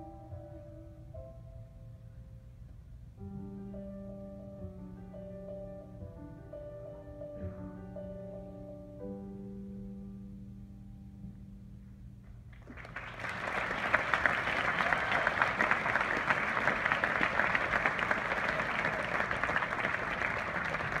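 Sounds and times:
audience applause: 12.6s - 21.0s.

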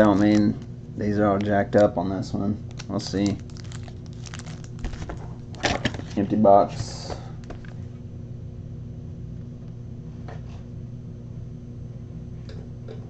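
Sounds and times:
foil packs rustling: 0.0s - 1.9s, 2.7s - 7.8s
low electrical hum: 0.0s - 13.0s.

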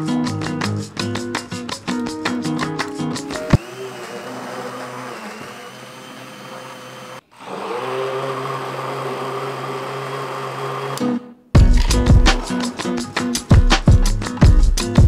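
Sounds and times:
immersion blender running: 3.5s - 11.2s.

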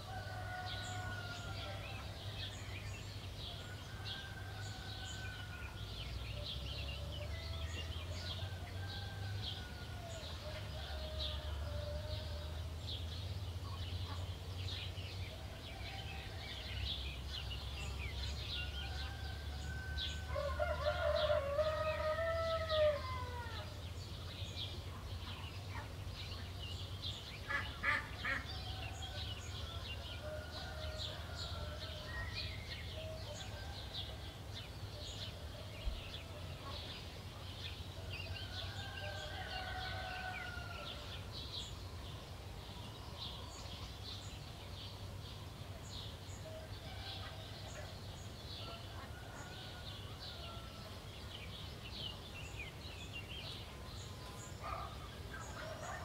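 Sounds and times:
rooster crowing: 0.0s - 2.1s, 18.6s - 23.7s, 38.4s - 41.2s
songbirds chirping: 0.0s - 56.0s.

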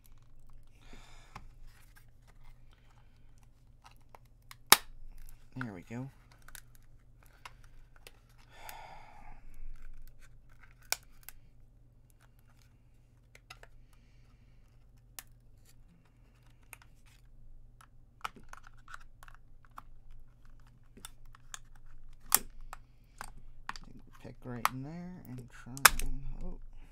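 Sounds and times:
plastic casing clicks and taps: 21.0s - 23.9s, 25.8s - 26.3s.

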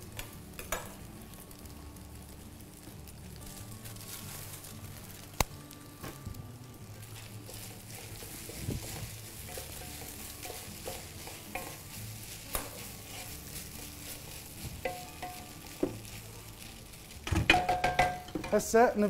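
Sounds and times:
food sizzling in hot oil: 0.0s - 19.0s
spoon knocking against pot: 17.3s - 18.6s.

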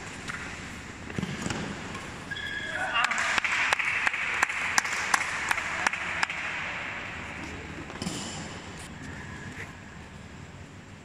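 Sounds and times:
rhythmic clapping: 3.0s - 6.9s.

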